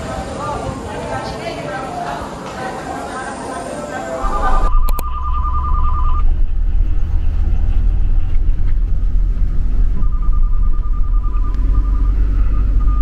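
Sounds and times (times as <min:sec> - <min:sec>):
rapid two-tone electronic beeping: 0:04.2 - 0:07.2
vehicle low rumble: 0:04.2 - 0:13.0.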